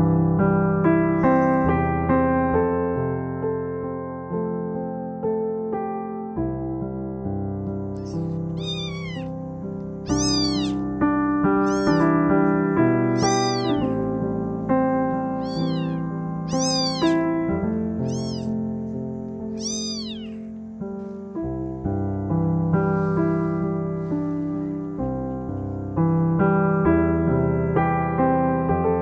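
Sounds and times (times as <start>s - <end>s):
soft piano music: 0.0s - 29.0s
kitten mewing: 8.0s - 9.4s, 10.1s - 10.9s, 11.6s - 12.2s, 13.1s - 14.2s, 15.3s - 17.3s, 17.9s - 18.6s, 19.5s - 20.6s.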